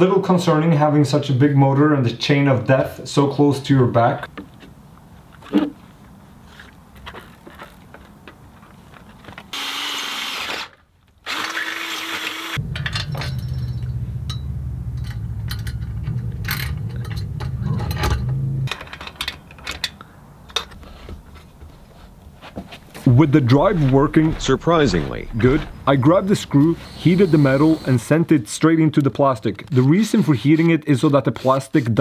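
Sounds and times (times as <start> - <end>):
power tool running: 9.5 - 12.6, 26.6 - 27.9
low-pitched machine drone: 12.6 - 18.7, 23.6 - 27.9
metal parts clicking: 15.0 - 20.8.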